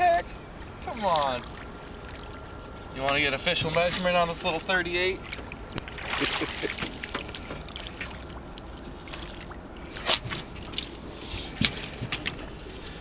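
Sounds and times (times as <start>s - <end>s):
water splashing and dripping: 5.2s - 13.0s
sharp knocks on boat: 5.3s - 7.8s.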